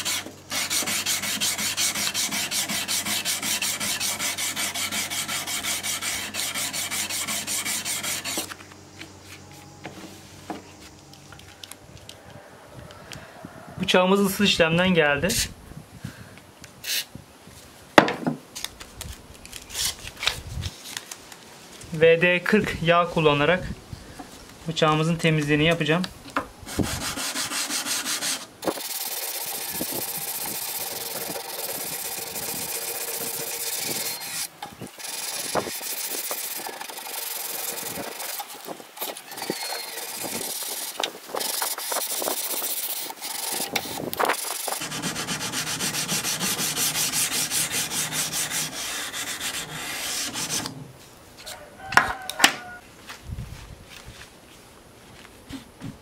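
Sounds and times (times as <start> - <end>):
sandpaper rasping on metal blade: 0.0 - 8.5, 26.7 - 50.8.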